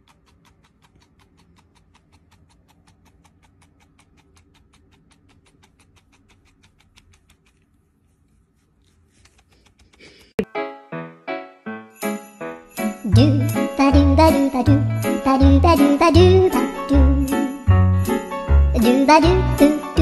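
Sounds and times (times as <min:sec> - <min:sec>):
cat purring: 0:00.0 - 0:10.4.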